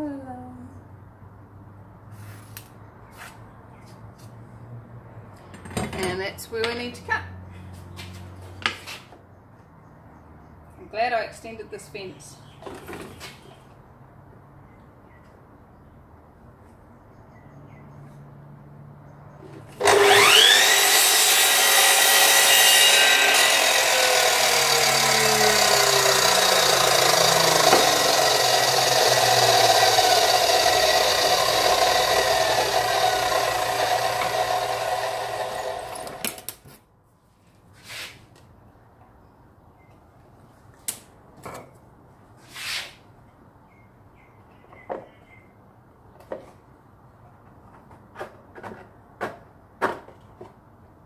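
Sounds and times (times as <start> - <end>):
mitre saw motor whine: 19.8 - 36.4.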